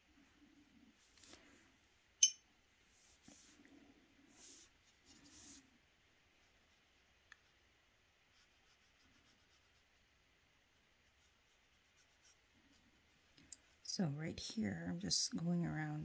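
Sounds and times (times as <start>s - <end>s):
brush swishing on paper: 2.9s - 3.6s, 4.3s - 5.7s.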